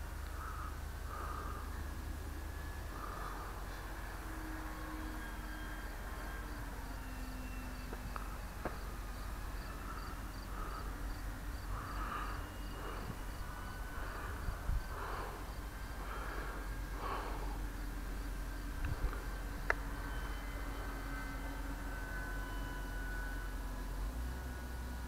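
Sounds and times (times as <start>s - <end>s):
model plane motor whine: 0.0s - 25.0s
wind rumble on microphone: 9.8s - 17.0s, 18.2s - 19.8s.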